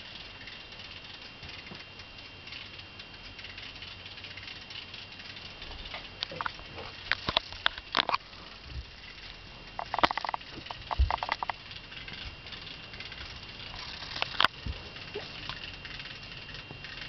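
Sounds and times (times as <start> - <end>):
plastic parts clicking and rattling: 3.8 - 8.3, 9.0 - 17.0.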